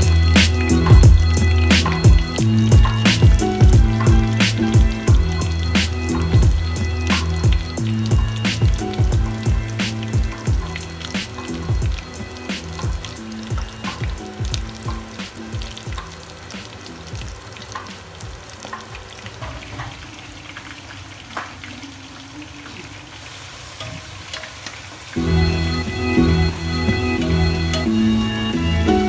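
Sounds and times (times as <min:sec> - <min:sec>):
food deep-frying in oil: 0:00.0 - 0:29.0
guitar music: 0:25.2 - 0:29.0.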